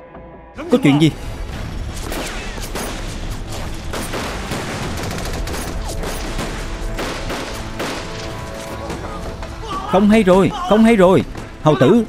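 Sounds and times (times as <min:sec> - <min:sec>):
film score music: 0:00.0 - 0:12.0
gunshots: 0:01.2 - 0:09.6.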